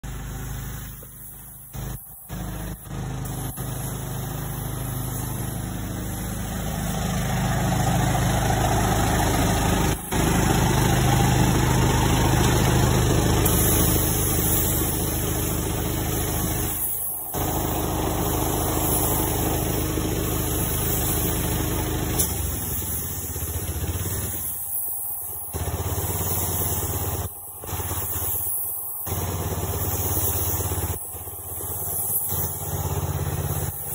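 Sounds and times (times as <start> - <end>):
small engine running: 0.0 - 33.9
steady hiss: 0.0 - 33.9.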